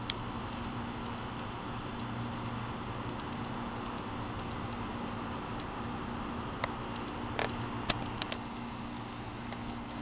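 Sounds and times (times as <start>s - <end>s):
even hiss: 8.4s - 10.0s.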